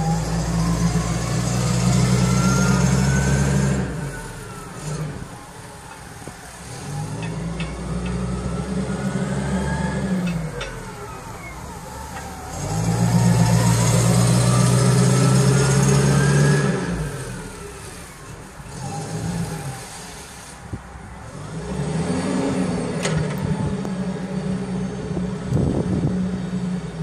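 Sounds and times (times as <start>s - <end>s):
forklift engine running: 0.0s - 20.6s.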